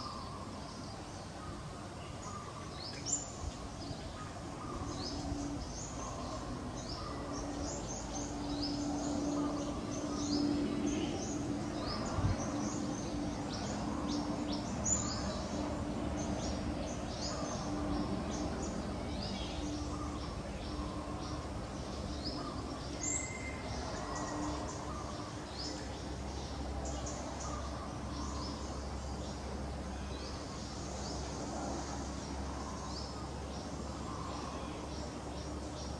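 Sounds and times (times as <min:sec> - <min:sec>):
birds chirping: 0:00.0 - 0:35.9
steady low hum: 0:00.0 - 0:35.9.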